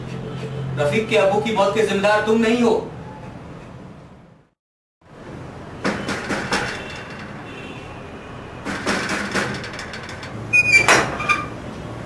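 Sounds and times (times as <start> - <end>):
knocking on wooden door: 5.8 - 7.1, 8.7 - 10.2
door rattling and squeaking open: 5.8 - 7.9, 8.6 - 11.7.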